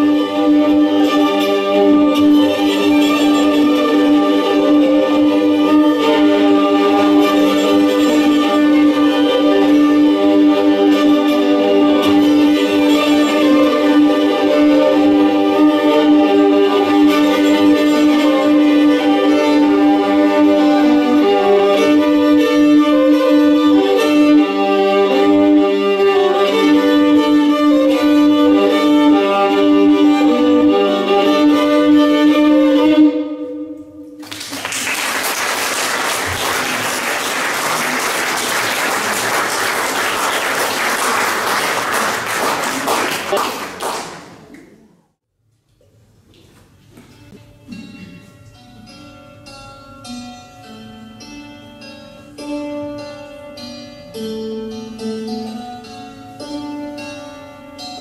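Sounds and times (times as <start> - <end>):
solo violin melody over drone: 0.0 - 33.8
audience applauding: 34.2 - 44.8.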